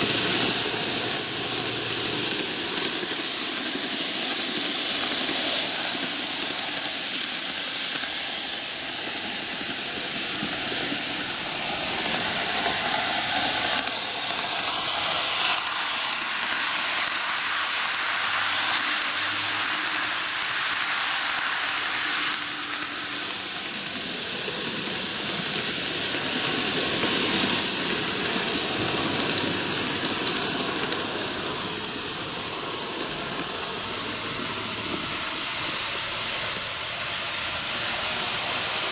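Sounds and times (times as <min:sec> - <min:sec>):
model train wheels rattling on rails: 0:00.0 - 0:38.9.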